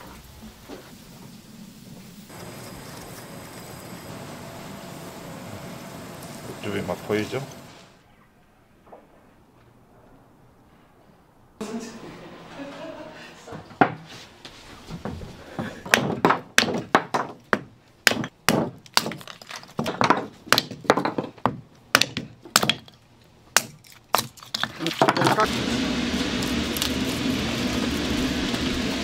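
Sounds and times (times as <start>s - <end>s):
wood splitting knocks and cracks: 15.9s - 25.4s
wood pieces clattering: 18.1s - 23.0s, 23.6s - 25.5s.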